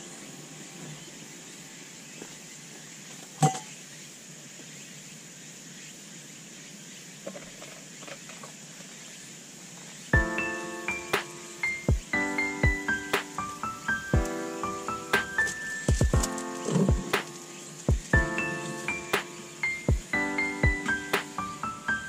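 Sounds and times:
piano-like music: 0:00.0 - 0:02.7, 0:10.1 - 0:22.0
high-pitched hiss: 0:00.0 - 0:22.0.

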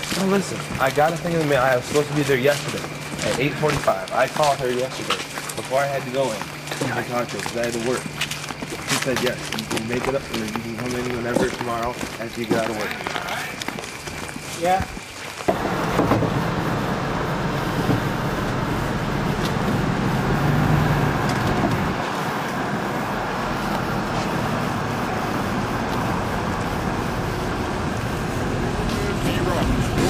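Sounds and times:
car road and engine noise: 0:00.0 - 0:30.0.

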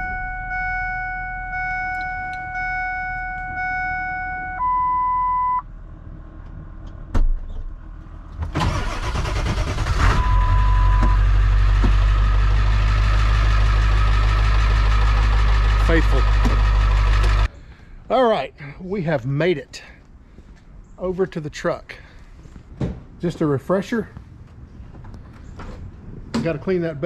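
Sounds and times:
truck warning chime dinging: 0:00.0 - 0:05.6
engine cranking and idling: 0:08.3 - 0:17.5.

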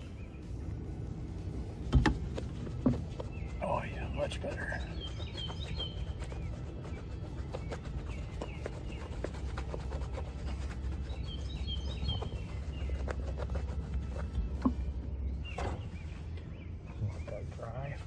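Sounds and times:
steady low rumble: 0:00.0 - 0:18.0
towel rubbing against wall: 0:02.2 - 0:14.9.

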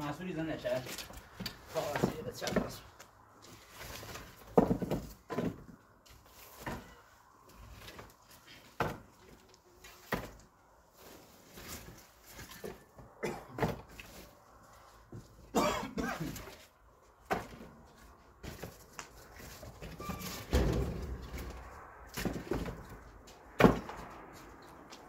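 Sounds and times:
knocks and clatter: 0:04.0 - 0:05.8, 0:18.4 - 0:25.0.

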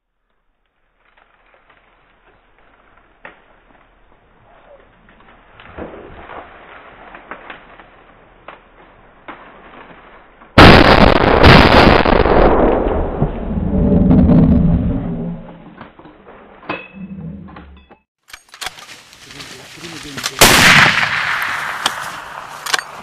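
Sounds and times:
low pitched rumble: 0:12.2 - 0:15.8
rifle shots: 0:20.4 - 0:23.0.

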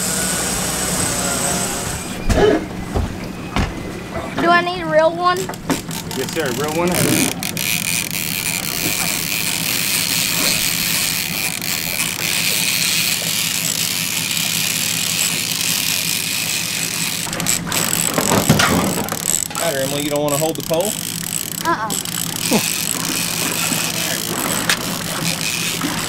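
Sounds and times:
outboard motor humming: 0:00.0 - 0:26.0
fishing reel ratcheting: 0:05.5 - 0:26.0.

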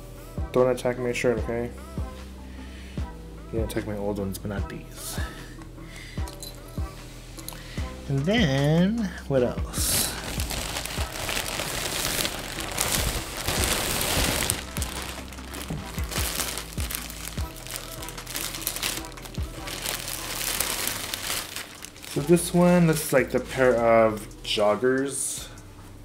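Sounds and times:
plastic bag crinkling: 0:09.8 - 0:23.1.

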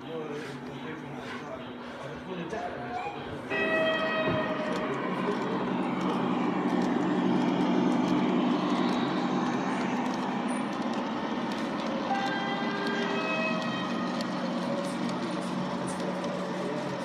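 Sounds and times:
model train wheels clattering on track: 0:04.0 - 0:17.0.

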